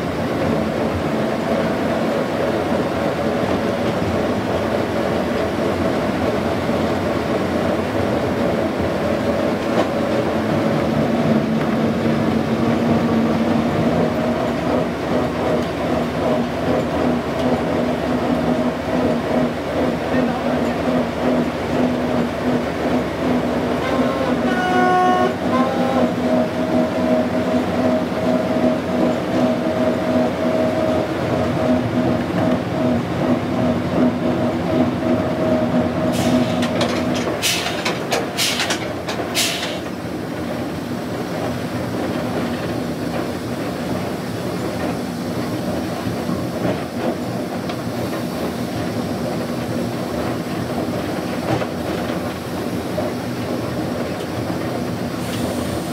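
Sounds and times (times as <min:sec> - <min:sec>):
diesel locomotive engine running: 0:00.0 - 0:55.9
locomotive horn blast: 0:23.8 - 0:26.2.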